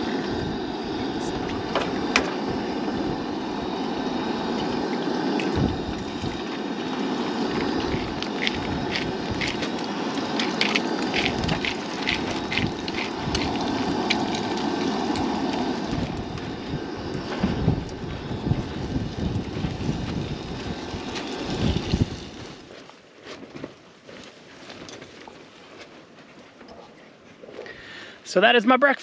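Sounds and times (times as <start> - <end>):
steady rushing noise: 0.0 - 22.7
wind buffeting microphone: 0.0 - 22.7
eggs frying in a pan: 7.5 - 16.5.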